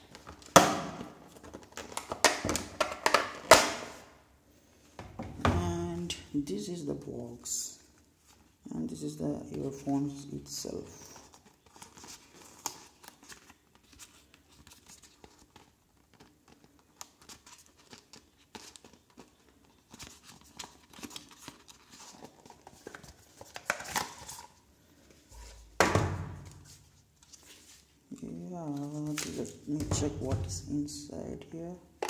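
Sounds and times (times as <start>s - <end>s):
cardboard packaging crinkling: 0.0s - 3.5s, 10.1s - 25.8s.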